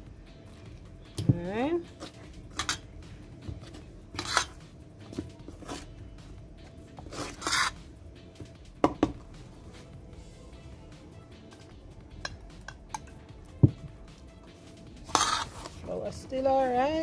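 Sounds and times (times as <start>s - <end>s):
spoon scraping metal bowl: 1.9s - 2.9s, 3.5s - 6.0s, 7.0s - 7.8s, 15.0s - 15.8s.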